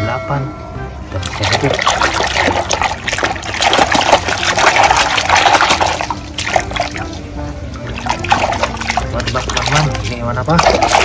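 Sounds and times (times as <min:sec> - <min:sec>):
water sloshing in a basin: 0:01.1 - 0:11.0
hands scrubbing plastic toy: 0:01.2 - 0:11.0.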